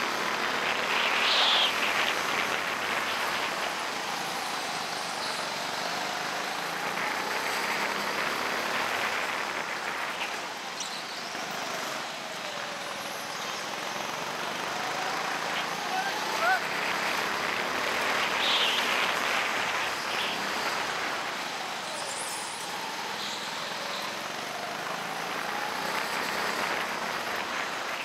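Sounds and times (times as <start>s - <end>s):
go-kart engine drone: 0.0s - 28.0s
kart running noise: 0.0s - 28.0s.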